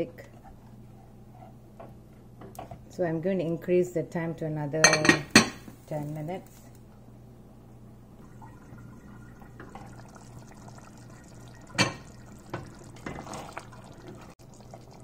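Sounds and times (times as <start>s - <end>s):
gravy simmering: 8.2s - 15.0s.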